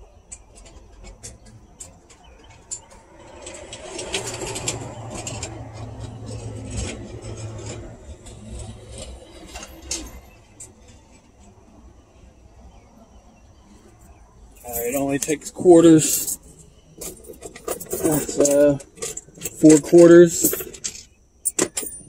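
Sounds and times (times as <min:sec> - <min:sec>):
low vehicle rumble: 0:00.0 - 0:20.5
coins clinking: 0:14.6 - 0:22.0.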